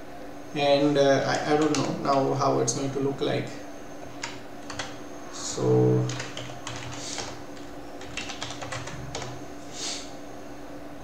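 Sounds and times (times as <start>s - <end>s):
typing on computer keyboard: 1.5s - 2.2s, 4.2s - 5.0s, 6.1s - 9.4s.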